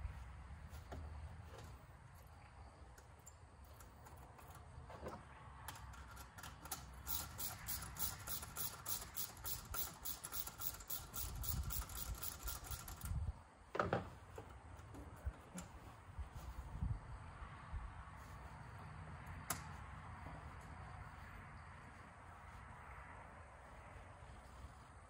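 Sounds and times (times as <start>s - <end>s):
ratchet clicking: 5.7s - 13.3s.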